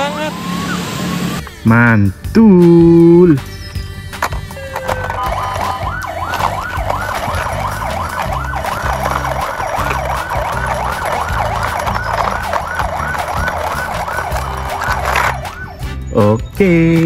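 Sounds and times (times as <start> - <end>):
toy electronic siren yelping: 4.4 - 16.0.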